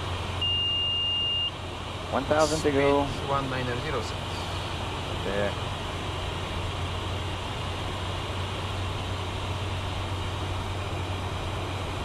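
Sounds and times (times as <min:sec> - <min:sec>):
constant low hum: 0:00.0 - 0:12.0
jet cockpit airflow rush: 0:02.0 - 0:06.1.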